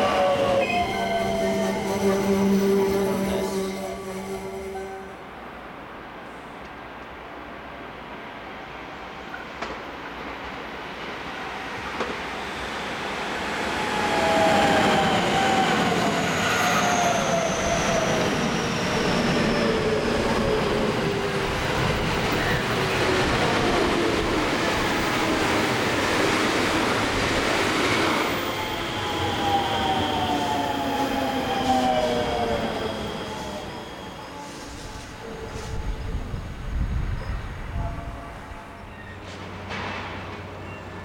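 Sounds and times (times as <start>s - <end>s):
train wheels rumbling on rail: 9.2s - 41.0s.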